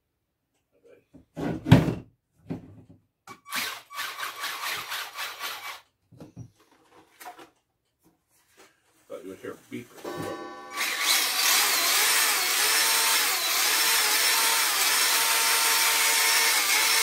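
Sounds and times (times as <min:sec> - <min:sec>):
electric motor whirring: 0:10.2 - 0:17.0.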